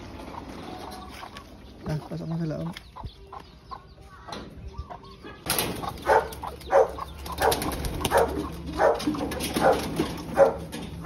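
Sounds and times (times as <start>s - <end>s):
dog barking: 6.0s - 10.7s.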